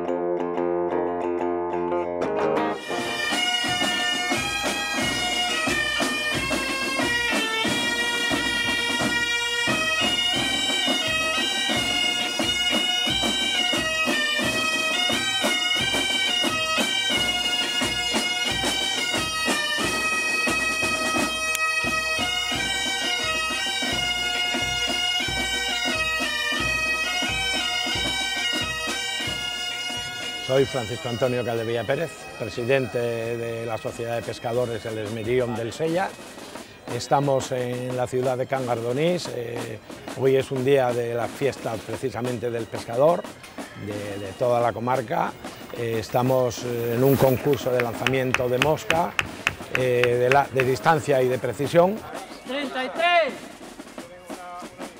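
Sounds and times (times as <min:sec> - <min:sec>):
drums beating: 0:02.2 - 0:54.9
bagpipes playing a tune: 0:02.7 - 0:52.5.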